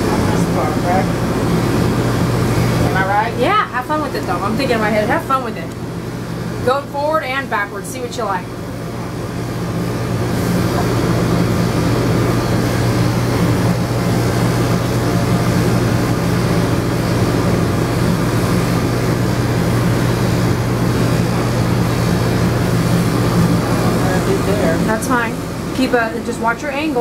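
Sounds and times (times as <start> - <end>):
electric clippers humming: 8.4 - 26.3.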